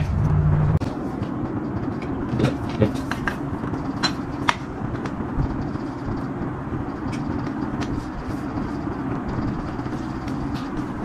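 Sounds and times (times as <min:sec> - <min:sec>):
low background rumble: 0:00.0 - 0:11.0
metal poles clicking and knocking: 0:01.2 - 0:05.2.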